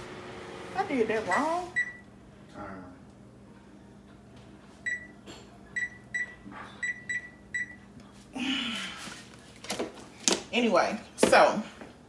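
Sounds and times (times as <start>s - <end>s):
oven touchpad beeping: 1.3s - 2.1s, 4.8s - 5.2s, 5.8s - 7.8s.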